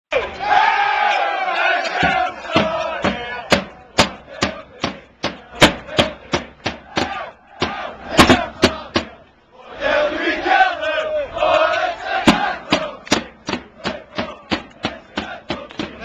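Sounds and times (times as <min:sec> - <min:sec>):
crowd chanting: 0:00.1 - 0:16.0
crowd voices: 0:00.1 - 0:16.0
marching drums beating: 0:02.0 - 0:09.2, 0:12.1 - 0:16.0.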